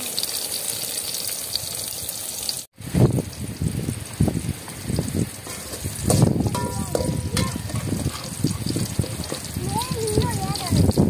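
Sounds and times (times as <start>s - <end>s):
fritters sizzling in hot oil: 0.0s - 11.0s
low-pitched ladling sounds: 2.8s - 11.0s.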